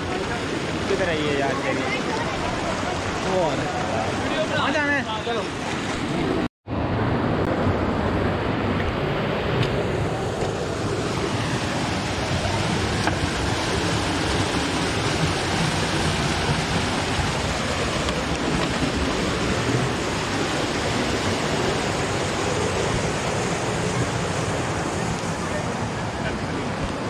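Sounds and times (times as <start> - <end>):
waterfall pouring over rocks: 0.0 - 5.4, 10.6 - 26.0.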